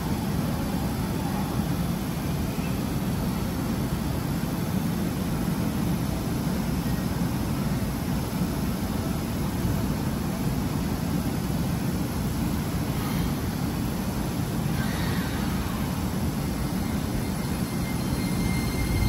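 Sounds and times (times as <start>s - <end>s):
electric train humming: 11.2s - 19.0s.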